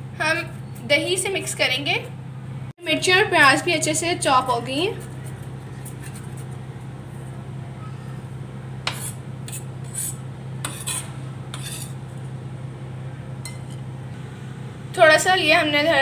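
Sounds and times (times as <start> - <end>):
knife tapping and scraping on table: 8.9 - 11.0.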